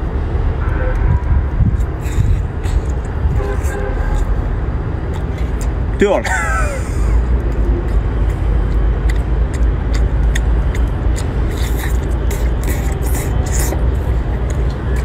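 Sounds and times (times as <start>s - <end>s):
low outdoor rumble: 0.0s - 15.0s
wet lip smacks and clicks: 0.9s - 4.4s, 5.0s - 6.0s, 7.2s - 15.0s
hissy slurping: 9.1s - 15.0s.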